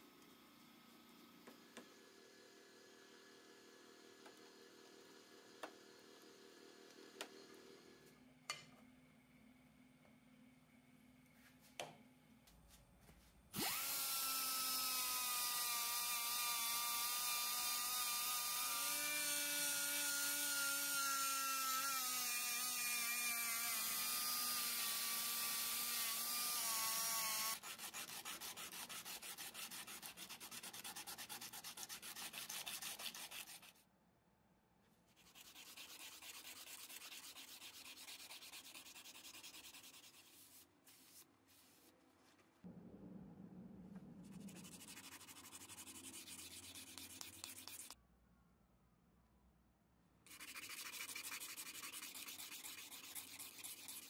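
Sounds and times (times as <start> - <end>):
small power tool whining: 13.6 - 27.7
rapid rubbing strokes: 35.1 - 41.9, 44.2 - 48.0, 50.3 - 54.0.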